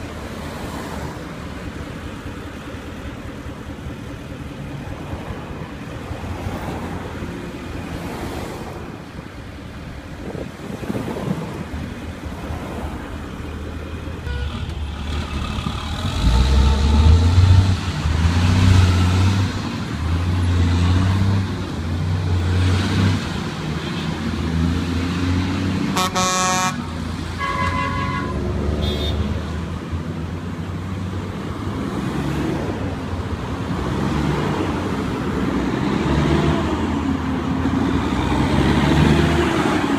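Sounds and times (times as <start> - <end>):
truck diesel engine running: 0.0 - 8.0, 11.3 - 20.2
street traffic: 0.0 - 39.9
vehicle horn: 14.2 - 14.8, 25.9 - 29.4.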